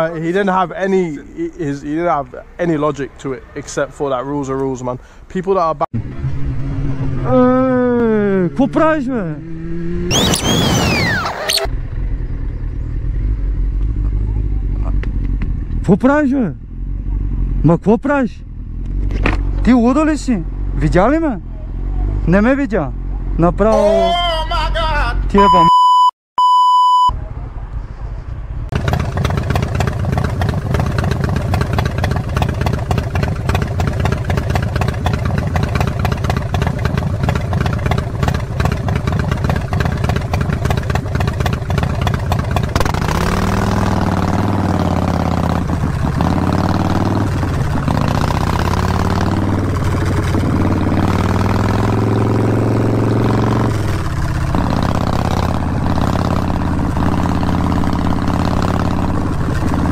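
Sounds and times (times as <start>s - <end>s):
motorcycle engine running: 6.0s - 17.6s, 28.7s - 59.9s
lower motorcycle engine note: 6.0s - 24.1s, 28.7s - 59.9s.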